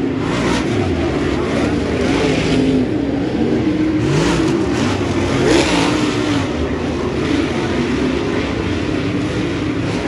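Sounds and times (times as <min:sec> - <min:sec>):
race car engines running hard: 0:00.0 - 0:10.0.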